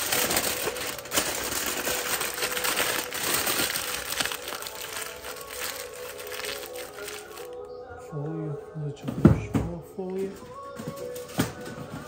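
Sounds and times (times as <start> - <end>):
aluminium foil crinkling: 0.0 - 7.7.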